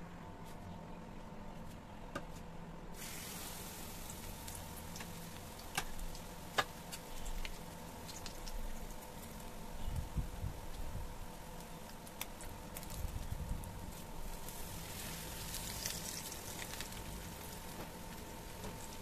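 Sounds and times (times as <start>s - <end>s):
chicken sizzling in hot oil: 3.0s - 19.0s
oil pops and crackles: 4.0s - 9.6s, 11.6s - 19.0s.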